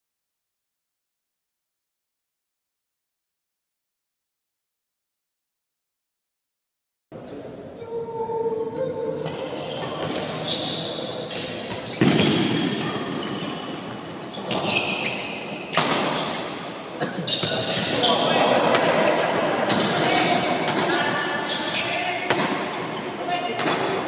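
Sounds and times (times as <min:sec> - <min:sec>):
racket hitting shuttlecock: 0:11.3 - 0:16.8, 0:17.4 - 0:24.0
spectators' voices: 0:16.3 - 0:24.0.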